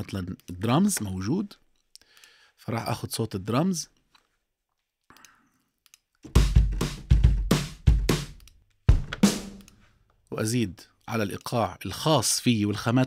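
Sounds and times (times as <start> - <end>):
kick and snare drum hits: 6.3 - 9.6.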